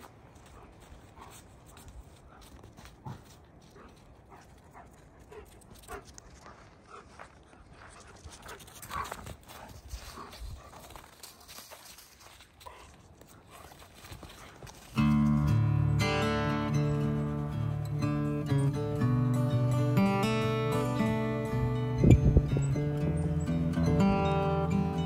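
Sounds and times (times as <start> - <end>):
paw steps in snow: 0.0 - 15.6
dogs panting: 0.0 - 19.0.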